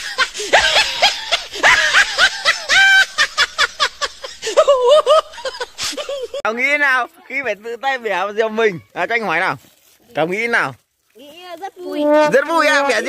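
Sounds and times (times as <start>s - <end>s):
children laughing: 0.0s - 6.5s.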